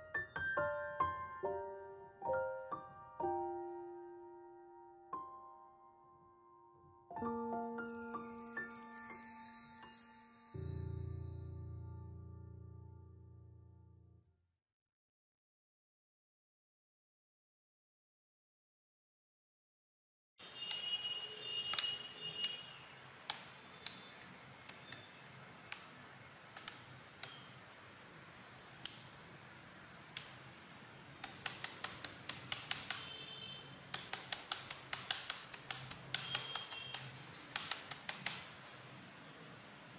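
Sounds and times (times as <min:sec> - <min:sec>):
laptop keyboard keys clicking: 0:26.5 - 0:27.5, 0:31.0 - 0:33.1, 0:33.9 - 0:38.7.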